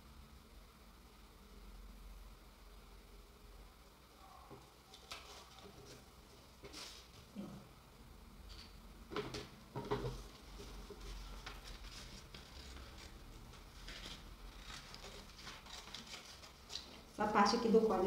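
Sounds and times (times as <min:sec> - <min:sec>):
paper rustling and sliding: 0:06.6 - 0:07.2, 0:10.1 - 0:17.1.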